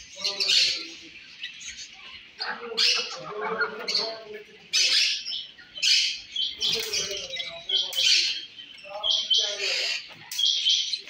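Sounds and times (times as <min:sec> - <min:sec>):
birds making harsh hissy calls: 0:09.3 - 0:10.4.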